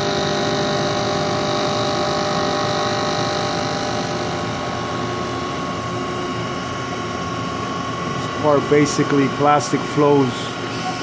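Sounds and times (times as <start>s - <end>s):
milling machine humming: 0.0s - 11.0s.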